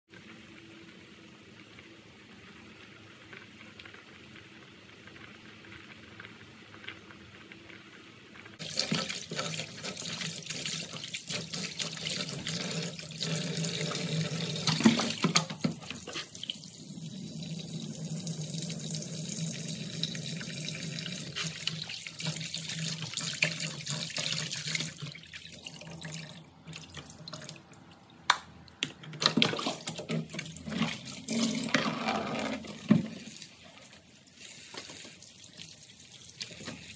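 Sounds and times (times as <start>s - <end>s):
soup pot boiling: 0.1s - 36.9s
tap running into basin: 8.6s - 16.6s, 18.0s - 33.7s
water splashing and sloshing: 21.3s - 36.9s.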